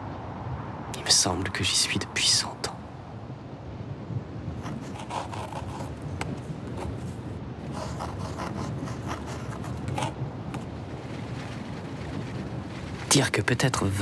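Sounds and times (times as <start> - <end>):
pencil strokes scratching paper: 4.6 - 10.7.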